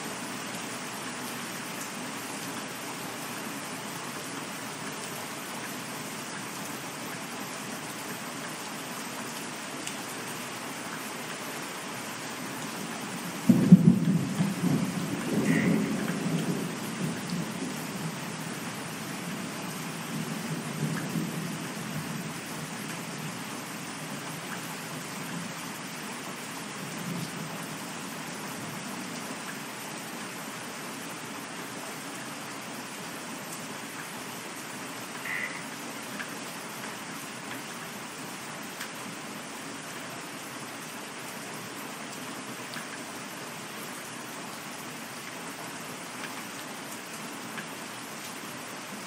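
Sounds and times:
steady rain: 0.0s - 49.0s
thunderclap rumbling: 13.5s - 17.3s
soft roll of thunder: 13.5s - 18.2s.

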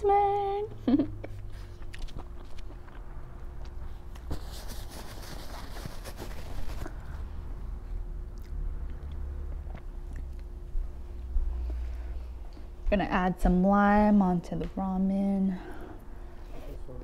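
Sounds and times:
close chewing and eating: 1.2s - 4.3s, 8.2s - 12.7s.

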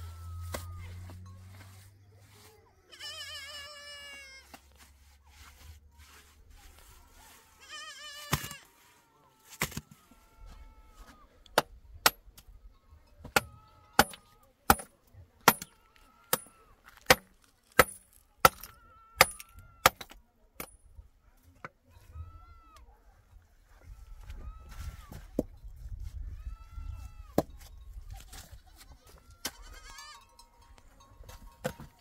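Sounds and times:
goat bleating: 2.8s - 4.5s, 7.2s - 8.8s, 28.5s - 30.4s.

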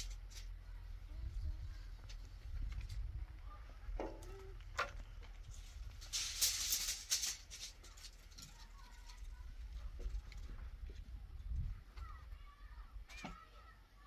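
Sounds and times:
wind rumble on microphone: 1.0s - 4.0s, 9.4s - 12.3s.

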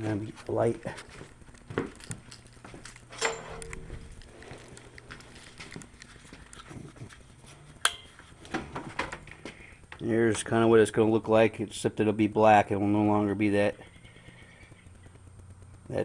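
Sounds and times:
faint low hum: 0.0s - 16.0s
knocks and clicks of handling: 7.8s - 10.0s.

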